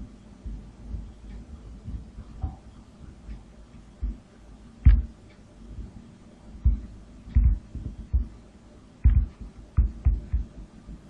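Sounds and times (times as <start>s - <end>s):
dull low thumps on desk: 4.8s - 5.2s, 6.6s - 8.4s, 9.0s - 10.5s.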